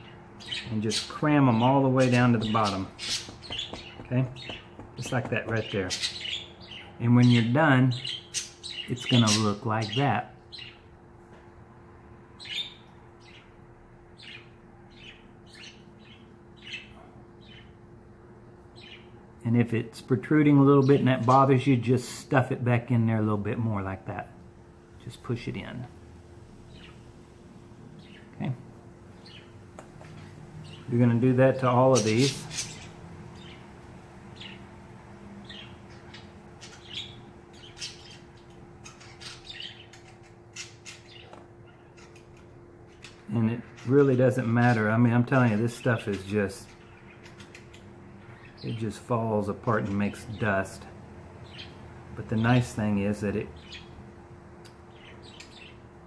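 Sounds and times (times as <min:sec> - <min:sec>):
birds chirping: 0:00.0 - 0:56.0
low steady hum: 0:00.0 - 0:56.0.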